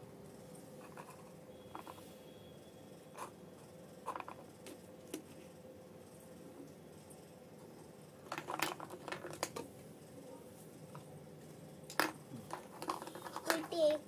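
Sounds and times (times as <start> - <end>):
plastic toy pieces clicking: 11.9 - 14.0.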